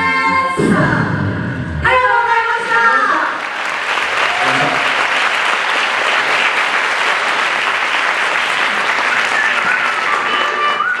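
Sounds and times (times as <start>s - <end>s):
audience applauding: 3.3s - 11.0s.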